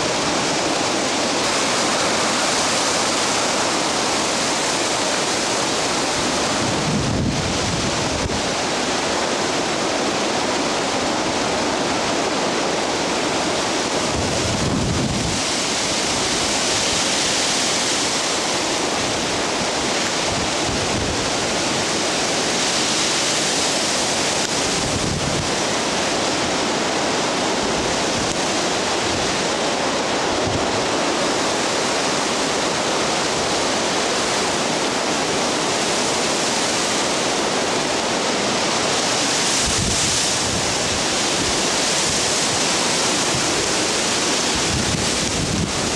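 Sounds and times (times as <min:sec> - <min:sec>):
wind buffeting microphone: 0:00.0 - 0:09.1, 0:13.9 - 0:17.2, 0:24.5 - 0:26.6, 0:39.4 - 0:45.9
strong wind through trees: 0:00.0 - 0:45.9.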